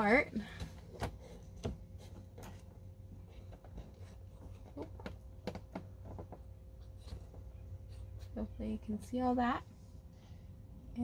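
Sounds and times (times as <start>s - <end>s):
plastic pots tapping and clicking: 3.4s - 7.5s.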